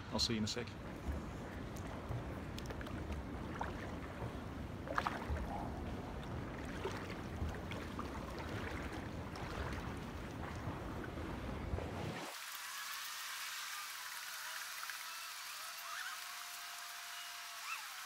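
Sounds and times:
steady low rumble: 0:00.0 - 0:12.2
pool water sloshing and splashing: 0:00.2 - 0:18.0.

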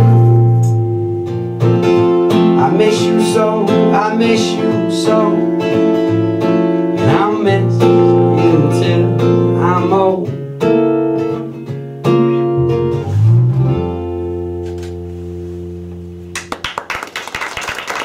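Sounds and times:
strummed acoustic guitar: 0:00.0 - 0:16.2
bass guitar: 0:00.0 - 0:16.6
man singing: 0:02.3 - 0:10.4.

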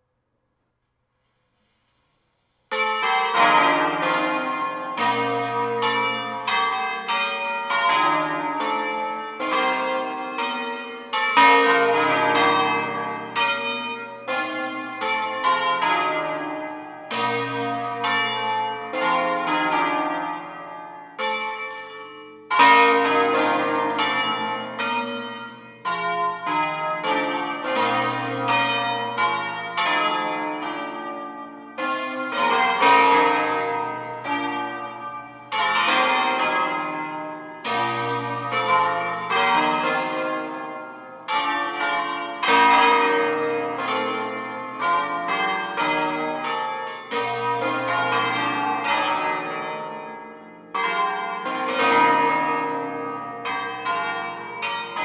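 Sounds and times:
church bells ringing: 0:02.7 - 0:55.0
low tenor bell: 0:02.7 - 0:55.0.

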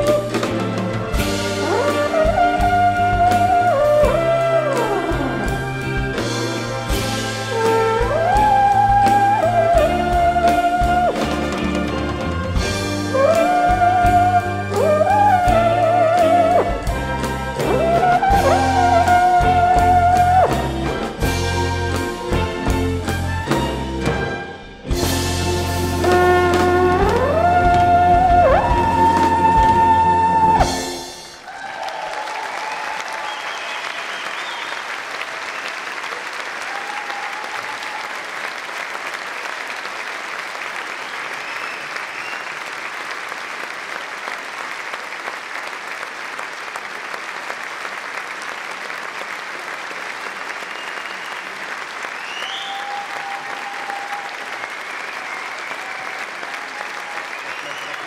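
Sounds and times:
audience applause: 0:00.0 - 0:23.1, 0:25.0 - 0:58.0
tenor horn high note: 0:25.9 - 0:31.2
audience cheering: 0:26.5 - 0:58.0.

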